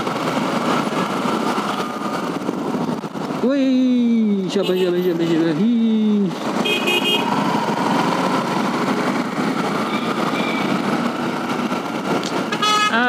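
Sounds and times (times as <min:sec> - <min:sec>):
wind noise: 0:00.0 - 0:04.4.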